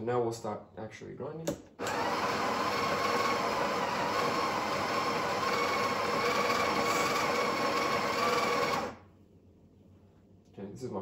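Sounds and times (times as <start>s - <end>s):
coffee grinder whirring: 1.8s - 9.0s.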